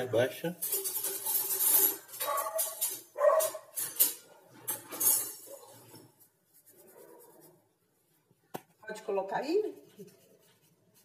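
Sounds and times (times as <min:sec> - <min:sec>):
dog barking: 0:02.2 - 0:03.7
hands rubbing floured dough: 0:06.0 - 0:11.0.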